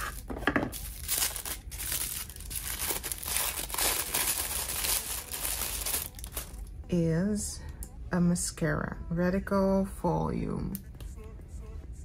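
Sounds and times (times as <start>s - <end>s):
tissue paper rustling: 0.0s - 6.6s.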